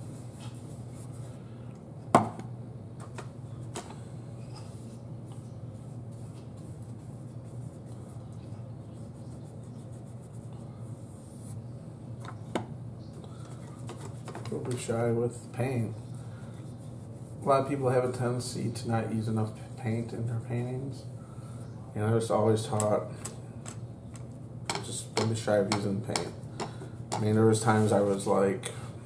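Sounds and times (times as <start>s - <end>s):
steady low hum: 0.0s - 29.0s
paintbrush scrubbing on canvas: 4.6s - 11.7s, 16.2s - 20.9s.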